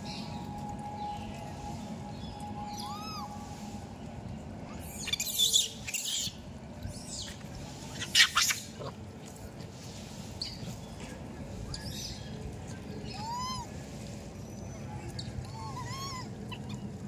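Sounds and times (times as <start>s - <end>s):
low background hum: 0.0s - 17.0s
baby monkey squealing: 8.0s - 8.6s, 15.6s - 16.8s.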